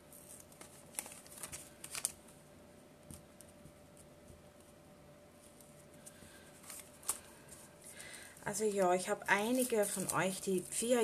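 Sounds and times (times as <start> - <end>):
faint steady hum: 0.0 - 11.0
paper rustling and clicking: 0.2 - 2.2, 5.5 - 8.2, 9.5 - 11.0.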